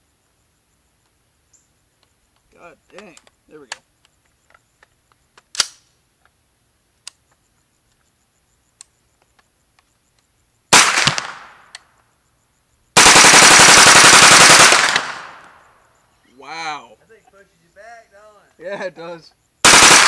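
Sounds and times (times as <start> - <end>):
sharp gun click: 4.8 - 5.9
rifle rapid gunfire bursts: 10.7 - 11.5, 13.0 - 15.4, 19.6 - 20.0.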